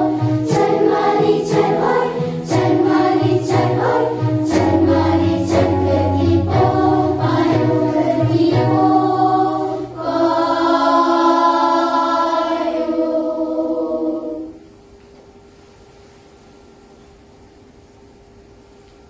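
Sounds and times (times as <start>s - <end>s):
beat: 0.0s - 10.5s
girls singing in harmony: 0.0s - 14.7s.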